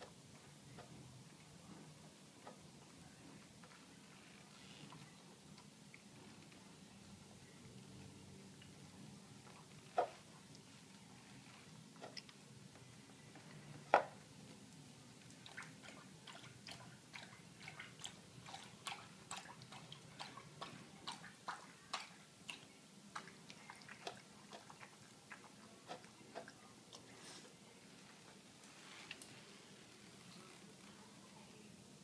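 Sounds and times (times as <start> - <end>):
dog licking and lapping: 15.2 - 27.1.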